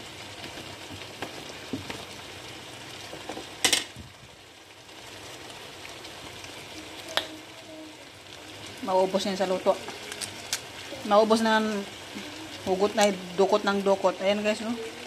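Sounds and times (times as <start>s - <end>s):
peanut shells cracking: 9.9s - 10.7s.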